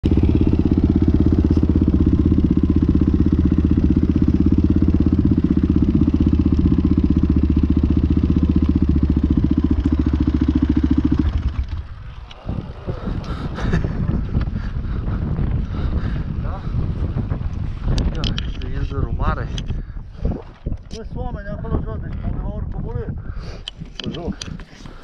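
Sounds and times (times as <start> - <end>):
dirt bike engine running: 0.0 - 19.6.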